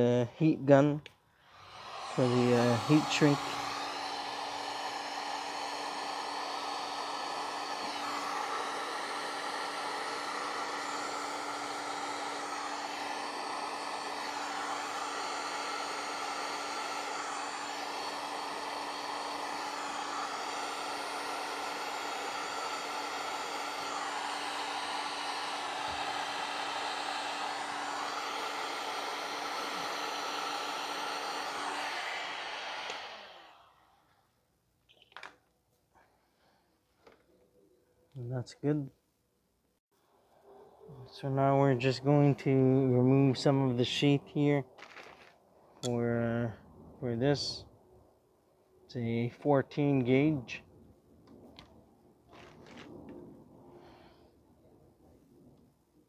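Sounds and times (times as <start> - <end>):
heat gun blowing: 1.1 - 34.2, 41.2 - 46.0.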